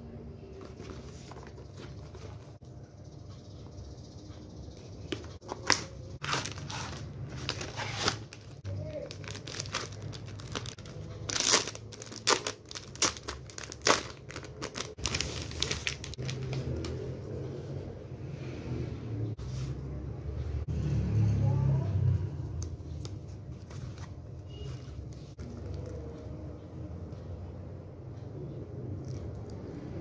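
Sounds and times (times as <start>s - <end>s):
plastic packaging crinkling: 5.4s - 17.0s.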